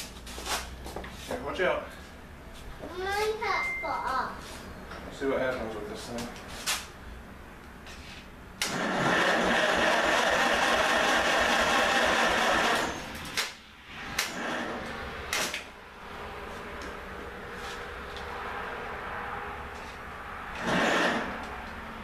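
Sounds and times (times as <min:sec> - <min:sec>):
engine cranking by starter: 0:08.6 - 0:15.7, 0:20.5 - 0:21.5.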